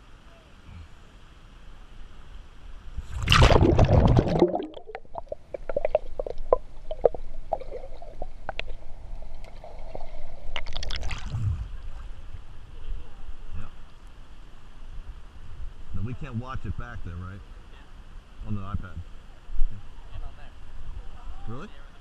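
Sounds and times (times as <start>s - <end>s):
loud splash of water: 3.0s - 8.8s, 9.5s - 12.0s
bubbling clicks and pops: 3.1s - 11.4s.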